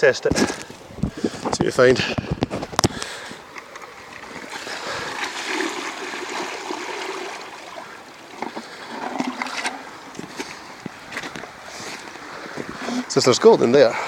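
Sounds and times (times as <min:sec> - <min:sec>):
river water rushing: 0:03.2 - 0:14.0.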